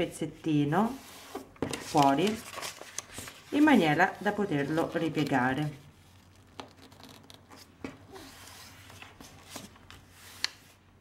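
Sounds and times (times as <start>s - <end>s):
paper rustling and sliding: 0.9s - 10.8s
sharp paper crinkles: 1.8s - 9.8s.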